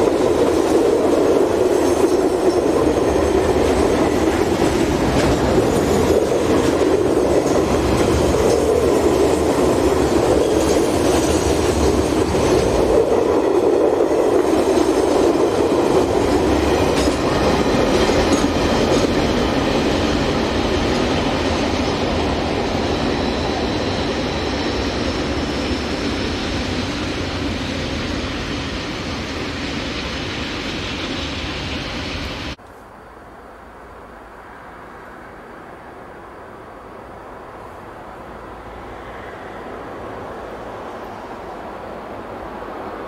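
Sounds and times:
freight train wheels clacking: 0.0 - 32.4.

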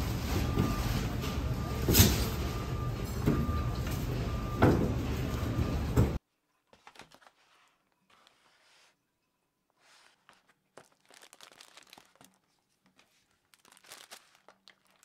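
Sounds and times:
faint repeating beep: 0.4 - 6.1
packaging crinkles: 10.0 - 15.0.

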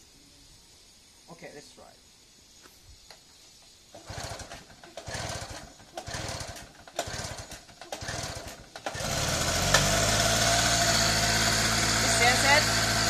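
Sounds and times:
recoil starter pulls: 3.9 - 13.0
small engine running: 4.0 - 13.0.

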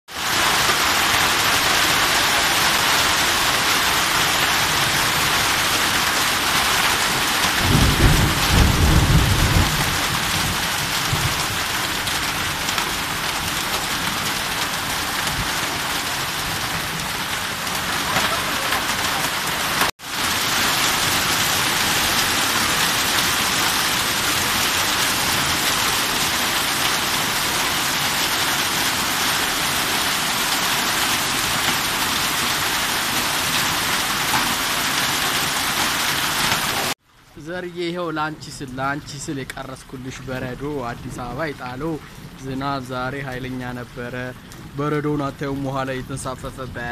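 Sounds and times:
hail and heavy rain pelting: 0.1 - 37.0.

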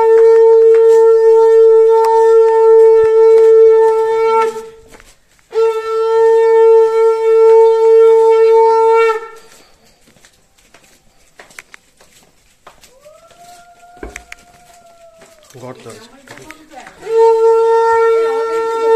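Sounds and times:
conch shell blasts: 0.0 - 4.9, 5.5 - 9.5, 17.0 - 18.9.

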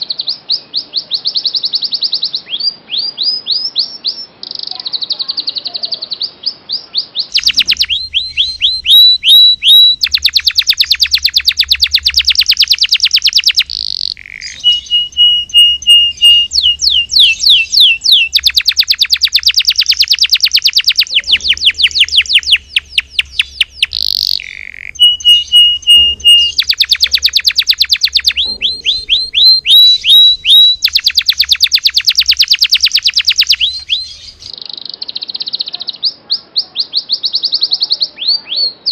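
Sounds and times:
canary singing: 0.2 - 38.9.

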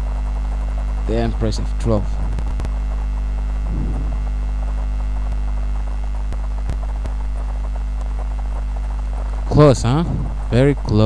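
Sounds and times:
electrical mains hum: 0.0 - 11.0
faint clicks: 2.3 - 3.3, 4.2 - 9.5.

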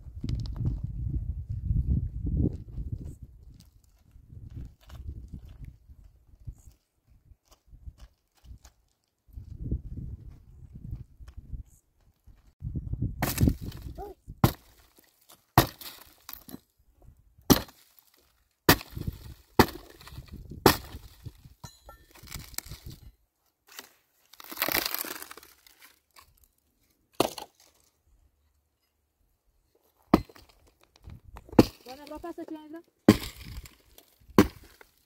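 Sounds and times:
dry wood cracking and splintering: 13.2 - 16.6, 17.5 - 21.4, 22.1 - 23.0, 23.7 - 26.6, 30.1 - 35.0
axe strikes on wood: 14.4 - 14.7, 15.6 - 16.5, 17.5 - 17.8, 18.7 - 21.1, 31.6 - 31.8, 33.1 - 33.6, 34.4 - 34.8.

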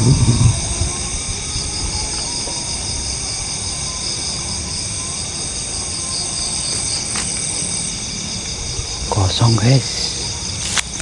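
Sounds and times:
low rumble: 0.0 - 3.9
crickets and insects trilling: 0.0 - 11.0.

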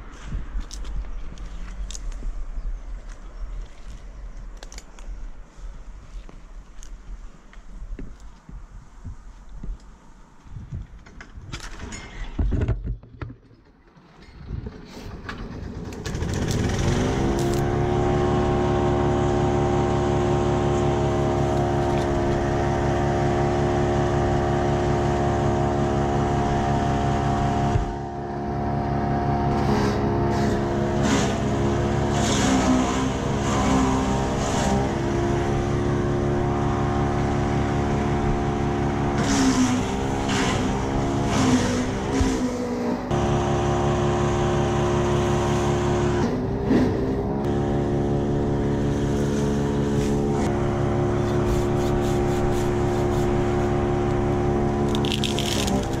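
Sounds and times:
wood chipper engine running: 14.0 - 56.0.

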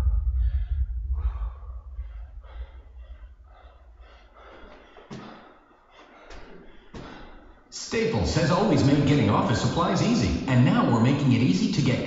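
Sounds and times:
heavy labored breathing: 0.0 - 7.7.

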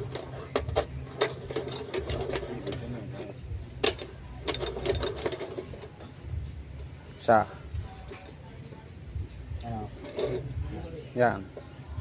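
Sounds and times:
metal clicks and knocks: 0.0 - 6.0
steady low hum: 0.0 - 12.0.

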